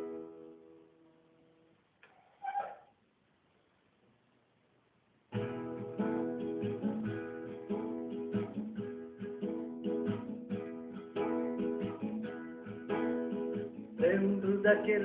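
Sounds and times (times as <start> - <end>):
acoustic guitar strumming: 0.0 - 1.0, 5.3 - 15.0.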